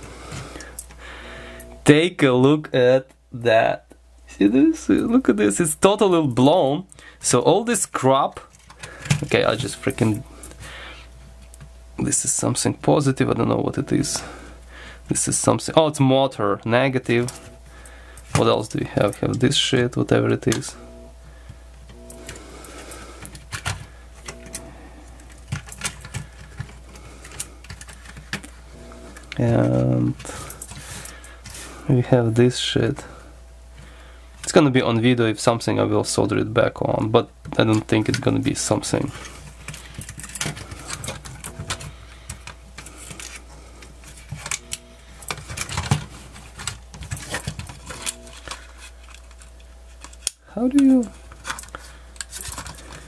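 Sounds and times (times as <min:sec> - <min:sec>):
steady low hum: 0:00.0 - 0:53.0.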